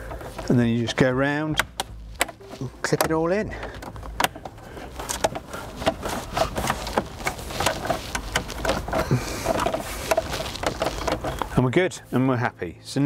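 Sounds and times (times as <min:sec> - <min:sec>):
plastic clicks and knocks: 0:01.6 - 0:11.5.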